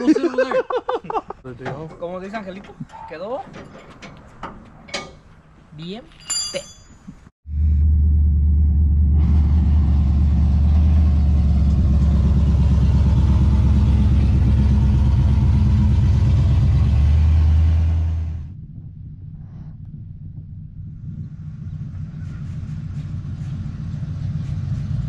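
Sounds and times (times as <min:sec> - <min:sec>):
pickup truck engine droning: 0:07.5 - 0:25.0.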